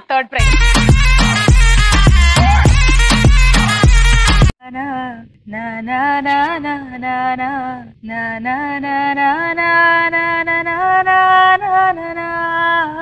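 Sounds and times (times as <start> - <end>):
woman singing unaccompanied: 4.6 - 13.0.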